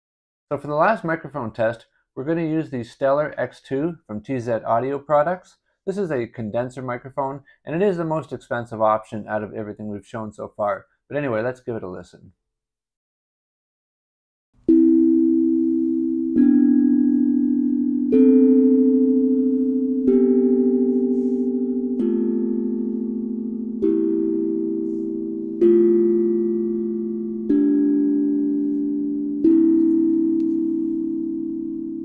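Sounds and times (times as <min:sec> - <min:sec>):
steel tongue drum melody: 0:14.6 - 0:32.0.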